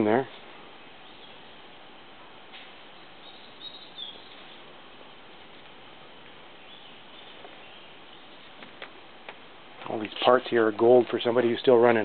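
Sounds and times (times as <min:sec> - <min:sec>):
faint forest hiss: 0:00.0 - 0:12.0
high bird chirps: 0:03.0 - 0:04.7, 0:06.6 - 0:08.6.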